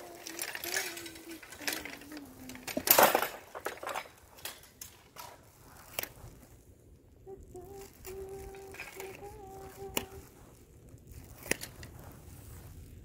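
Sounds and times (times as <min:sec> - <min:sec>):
person humming a tune: 0:00.0 - 0:02.9, 0:07.2 - 0:10.4
objects clicking and clattering: 0:00.0 - 0:06.1.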